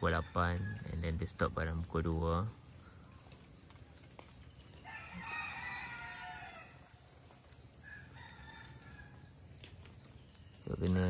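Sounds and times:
insects droning: 0:00.0 - 0:11.0
rooster crowing: 0:04.8 - 0:07.0, 0:07.8 - 0:09.3.

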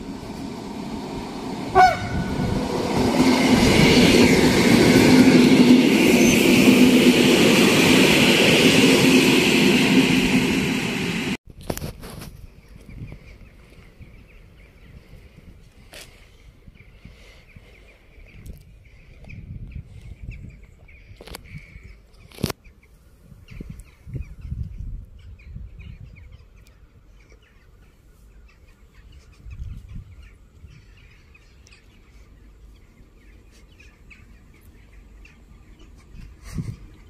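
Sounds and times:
gusty low rumble: 0:00.0 - 0:11.4.

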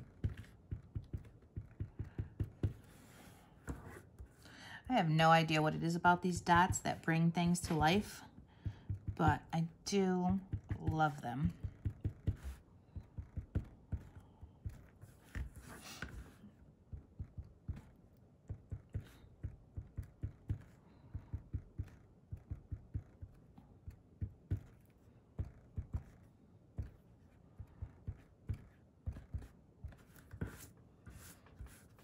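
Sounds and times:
marker tapping on cardstock: 0:00.0 - 0:02.9, 0:08.6 - 0:09.5, 0:10.3 - 0:16.2, 0:18.5 - 0:26.2, 0:26.8 - 0:27.0, 0:27.6 - 0:32.0.

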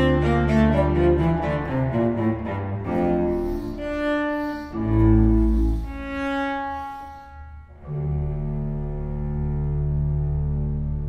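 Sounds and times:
slow music of long held notes: 0:00.0 - 0:11.0.

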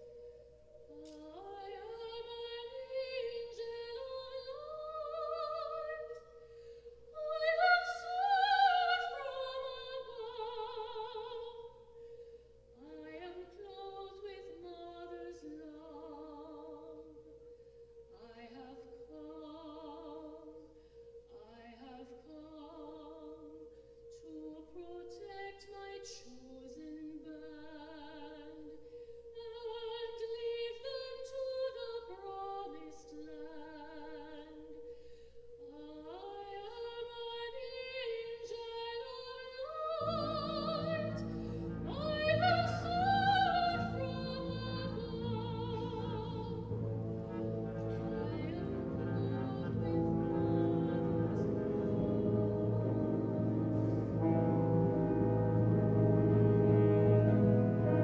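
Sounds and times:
soprano singing with vibrato: 0:00.0 - 0:11.9, 0:12.8 - 0:17.3, 0:18.0 - 0:20.7, 0:21.3 - 0:34.8, 0:35.6 - 0:58.0.

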